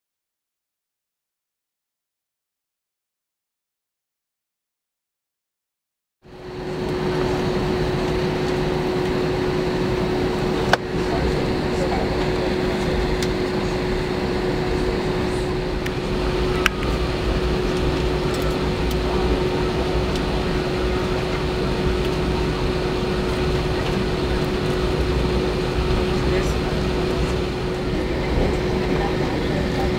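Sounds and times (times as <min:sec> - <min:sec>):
constant whine: 0:06.3 - 0:29.9
jet engines and air-conditioning hum: 0:06.3 - 0:29.9.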